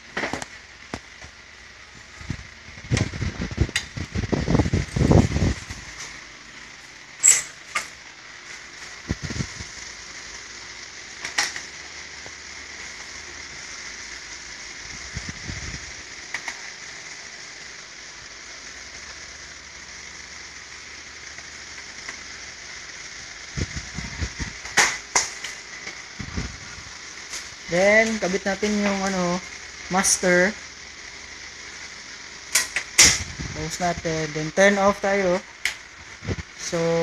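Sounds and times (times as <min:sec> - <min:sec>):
steady hiss: 0:00.0 - 0:37.0.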